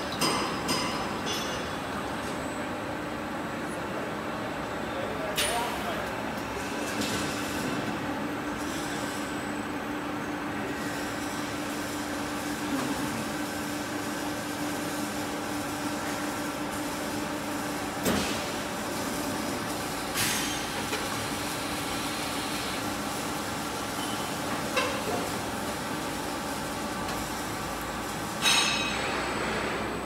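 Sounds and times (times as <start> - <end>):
sharp metal clanks: 28.4 - 29.2.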